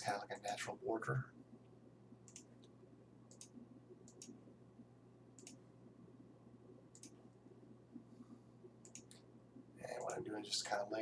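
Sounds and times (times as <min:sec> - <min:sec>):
steady low hum: 0:00.0 - 0:11.0
computer mouse clicks: 0:02.2 - 0:04.4, 0:05.4 - 0:05.6, 0:06.9 - 0:07.2, 0:08.8 - 0:09.3, 0:09.9 - 0:10.2.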